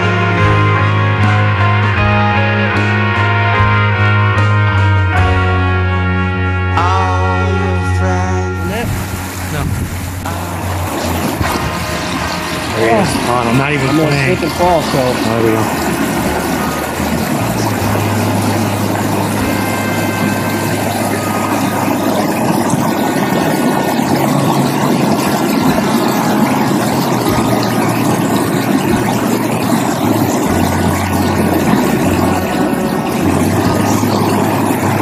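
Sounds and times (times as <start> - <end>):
low hum: 0.0 - 35.0
creek water rushing over riffle: 8.6 - 35.0.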